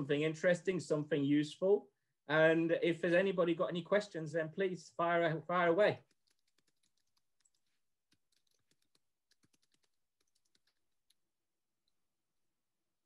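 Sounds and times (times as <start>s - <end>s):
typing on computer keyboard: 6.0s - 11.2s.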